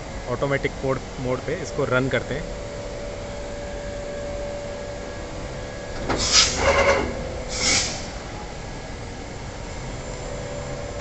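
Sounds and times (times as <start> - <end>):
air hiss bursts: 6.2 - 8.2.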